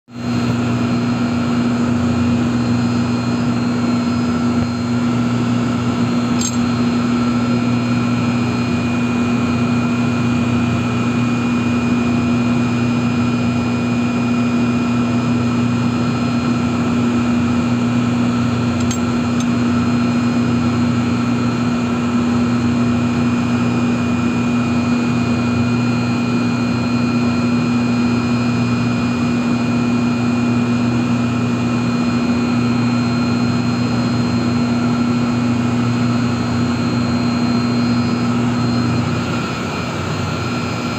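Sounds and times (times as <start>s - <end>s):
machinery low hum: 27.5s - 40.9s.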